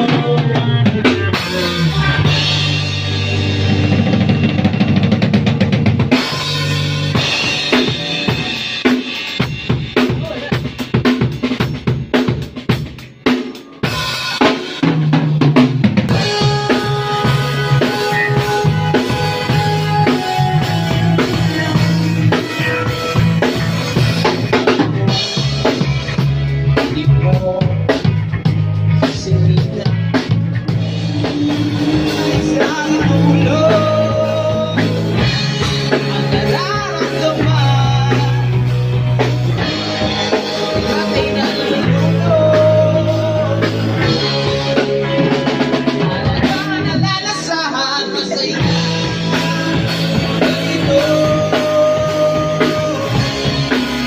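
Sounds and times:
electric bass low notes: 0.0 - 12.8, 15.1 - 47.5, 48.6 - 54.0
drum kit hits: 0.0 - 46.3
live band playing: 0.0 - 54.0.

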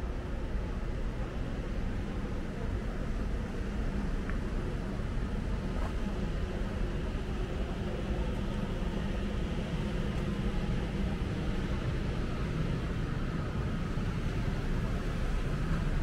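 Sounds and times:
urban background rumble: 0.0 - 16.0.

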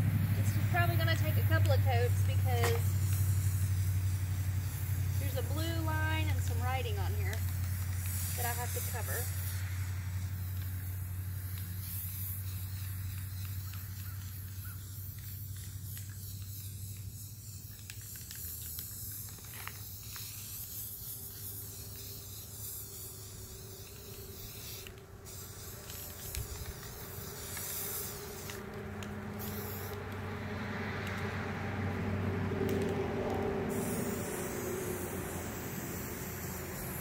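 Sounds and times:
spray paint can hissing: 0.1 - 37.0.

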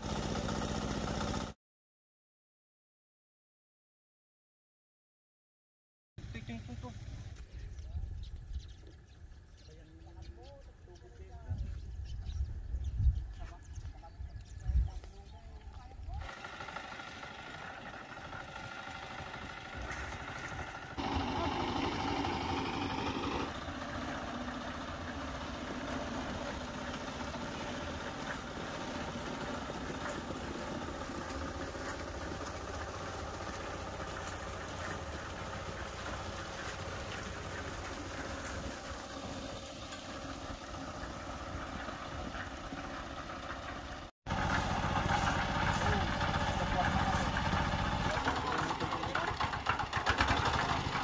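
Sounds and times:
concrete mixer engine running: 0.0 - 1.6, 15.6 - 51.0.

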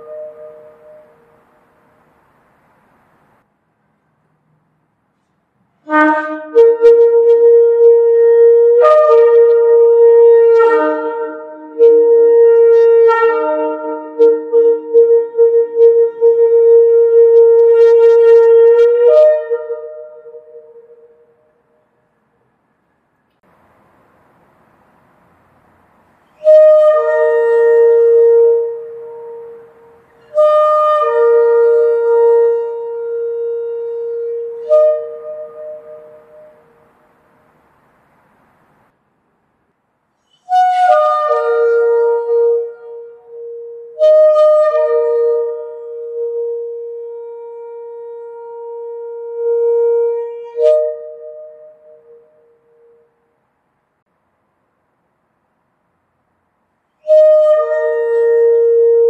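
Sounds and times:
shofar blast: 0.0 - 1.4, 5.8 - 21.8, 26.3 - 36.8, 40.5 - 53.1, 57.0 - 59.0.

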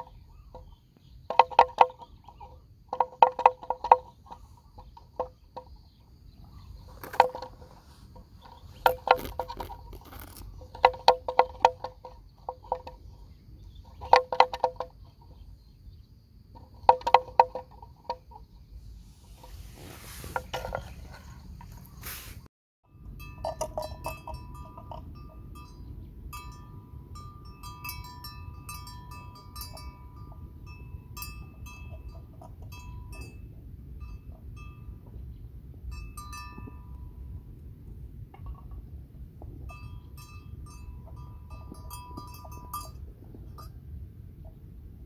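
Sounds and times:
bells clinking: 22.9 - 37.5, 39.5 - 43.8.

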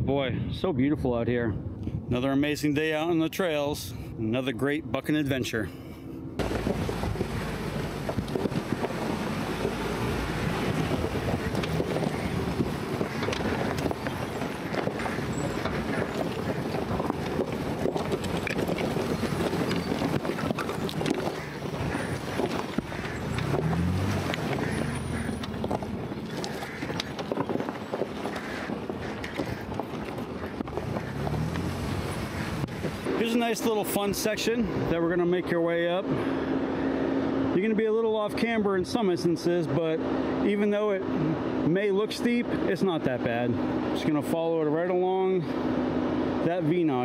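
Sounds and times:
vehicle rumble: 1.0 - 47.0
engine running low: 3.9 - 47.0
rocks crunching and clicking: 6.4 - 33.1
wind buffeting microphone: 6.4 - 34.9.

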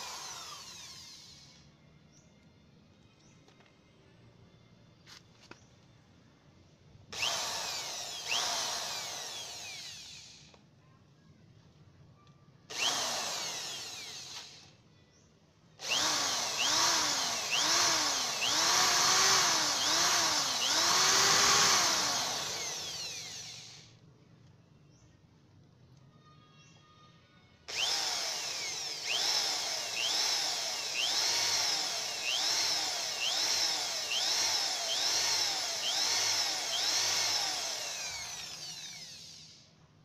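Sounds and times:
electric drill drilling metal: 0.0 - 1.6, 7.2 - 10.6, 12.7 - 14.7, 15.8 - 24.0, 27.7 - 39.7.

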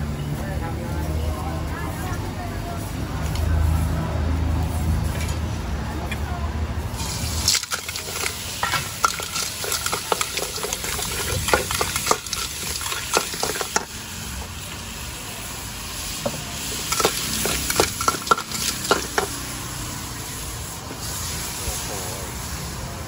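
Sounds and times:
food sizzling in a wok: 6.8 - 23.0
metal spatula scraping a wok: 7.1 - 14.0, 16.7 - 19.5.

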